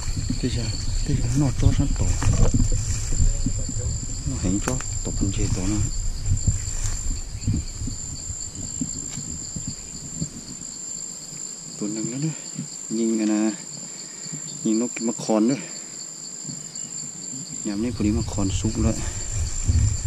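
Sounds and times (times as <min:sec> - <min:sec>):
low rumble: 0:00.0 - 0:10.6, 0:17.8 - 0:20.0
high-pitched insect drone: 0:00.0 - 0:20.0.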